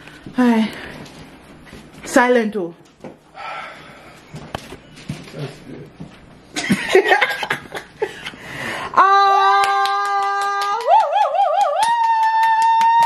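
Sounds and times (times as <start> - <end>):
laughter: 6.5 - 8.4
hands clapping: 9.4 - 13.0.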